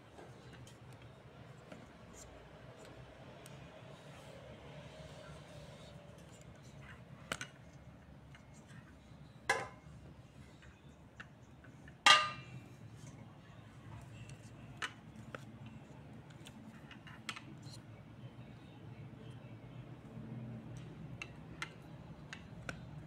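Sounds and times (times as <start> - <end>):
ringing metallic clang: 12.1 - 12.5.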